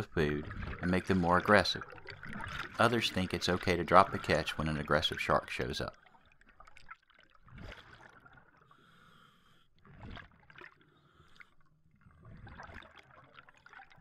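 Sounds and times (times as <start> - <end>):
exhaled bubbles: 0.0 - 8.8, 9.8 - 14.0
scuba regulator breathing: 8.6 - 9.8, 10.8 - 12.6.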